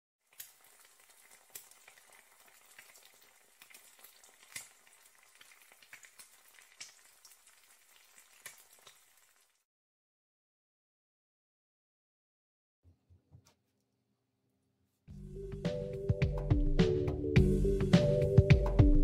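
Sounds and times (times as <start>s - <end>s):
food frying in oil: 0.2s - 9.7s.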